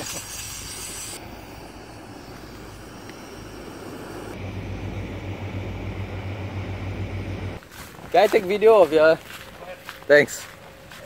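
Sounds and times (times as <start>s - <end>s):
gas camping stove burner: 0.0s - 7.6s
motorboat engine droning: 1.2s - 7.6s.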